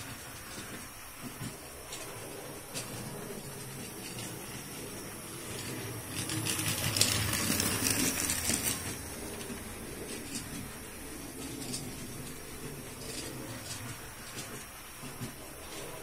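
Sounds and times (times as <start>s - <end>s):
model train wheels clicking on rails: 0.0s - 16.0s.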